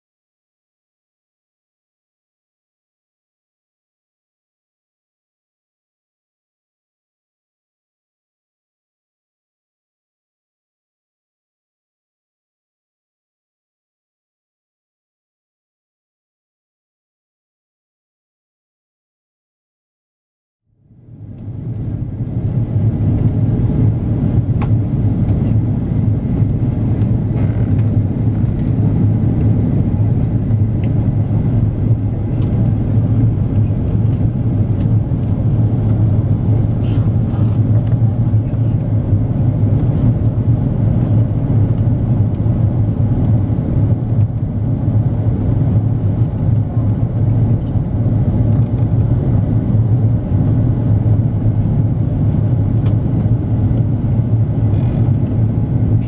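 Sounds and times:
airplane cabin drone: 20.7s - 56.0s.

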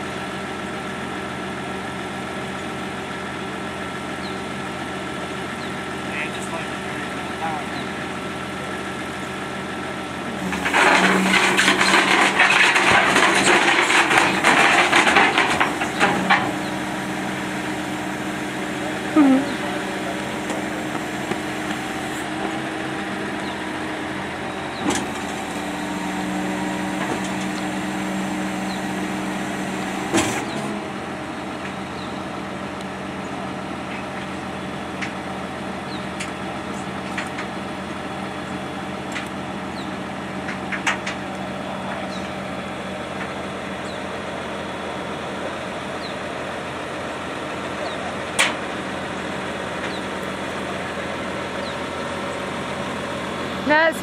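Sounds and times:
tow truck engine running: 0.0s - 54.0s
hydraulics working: 4.2s - 54.0s
loud metal clunk: 10.4s - 16.7s, 30.1s - 30.7s.

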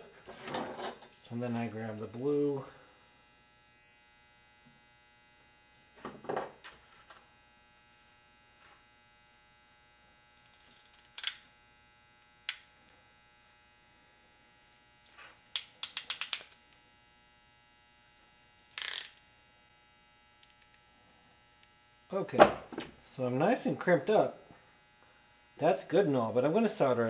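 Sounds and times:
faint mains hum: 0.0s - 27.0s
crimping tool ratchet clicks: 15.6s - 16.6s, 18.7s - 19.2s.

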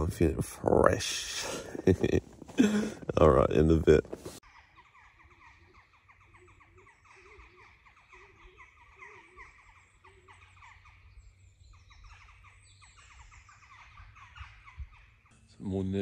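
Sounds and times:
songbirds chirping and trilling: 0.0s - 16.0s
low repeating bird call: 4.4s - 15.5s.

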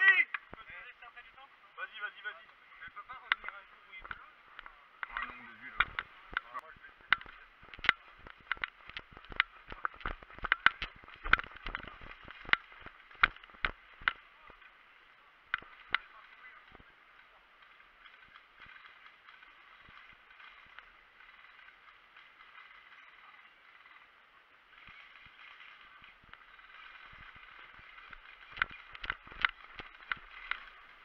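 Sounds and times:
faint steady hiss: 0.0s - 31.0s.

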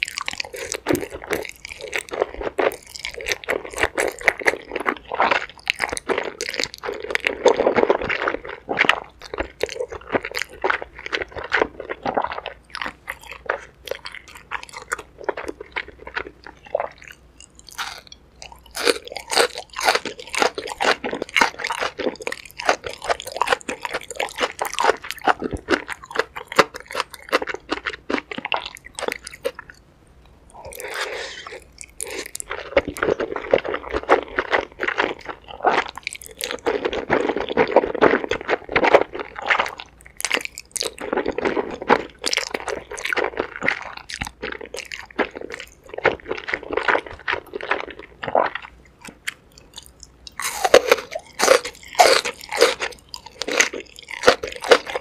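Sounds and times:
person chewing and slurping noodles: 0.0s - 29.8s, 30.5s - 55.0s
crunching bites: 17.4s - 29.7s, 30.6s - 55.0s.

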